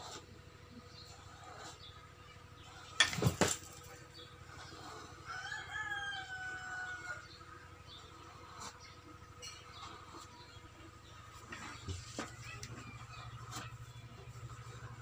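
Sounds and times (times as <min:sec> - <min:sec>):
distant rooster crowing: 0:05.2 - 0:07.5.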